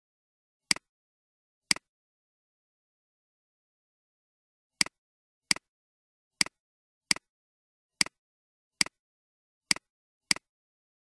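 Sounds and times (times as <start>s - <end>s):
computer mouse clicking: 4.8s - 5.7s, 6.4s - 7.3s, 8.0s - 8.2s, 8.8s - 9.0s, 9.7s - 10.5s.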